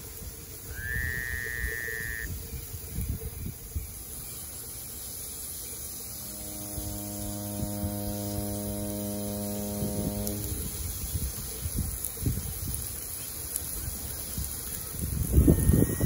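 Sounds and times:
wood fire crackling: 0:00.0 - 0:16.0
brief high whistle: 0:00.7 - 0:02.3
sustained musical chord: 0:05.7 - 0:11.0.

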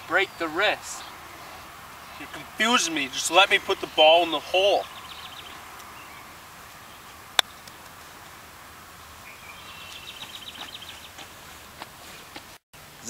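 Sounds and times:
bird chirping trill: 0:00.0 - 0:07.8, 0:09.1 - 0:11.2
outdoor background hiss: 0:00.0 - 0:13.0.

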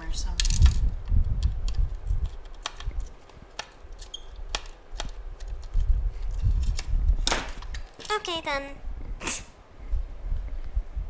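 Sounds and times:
plastic housing bumps: 0:00.4 - 0:05.8
screwdriver clicking on circuit board: 0:01.0 - 0:05.8.

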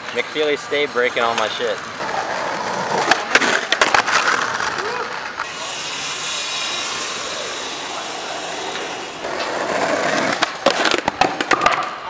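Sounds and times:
skateboard wheels rolling on asphalt: 0:00.0 - 0:12.0
skateboard clattering on curb: 0:01.3 - 0:05.5, 0:08.8 - 0:12.0.

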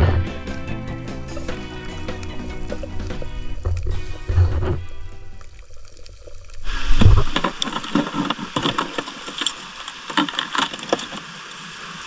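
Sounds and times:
underwater clicks and crackles: 0:01.2 - 0:12.0
faint hiss: 0:02.8 - 0:12.0.

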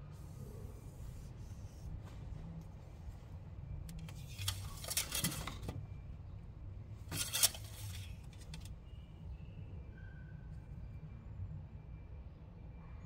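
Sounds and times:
low steady rumble: 0:00.0 - 0:13.0
metal parts scraping and clinking: 0:04.2 - 0:05.6, 0:07.1 - 0:08.7.

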